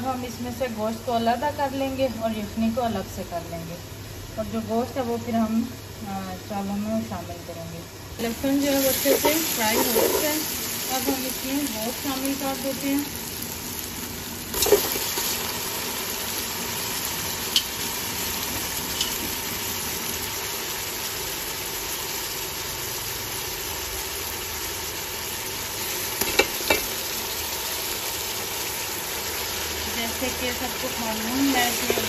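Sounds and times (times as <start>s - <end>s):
meat sizzling in hot oil: 8.2s - 32.0s.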